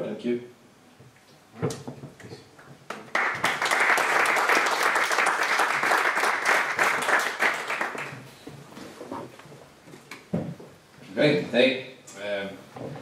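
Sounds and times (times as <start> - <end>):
audience applauding: 2.9 - 8.2.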